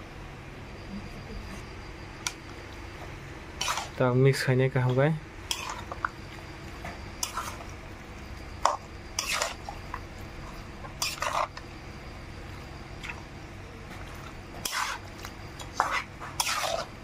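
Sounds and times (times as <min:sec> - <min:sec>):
metal spatula scraping a wok: 0:03.6 - 0:04.0, 0:05.5 - 0:06.0, 0:07.2 - 0:07.6, 0:08.6 - 0:09.6, 0:11.0 - 0:11.6, 0:14.6 - 0:17.0.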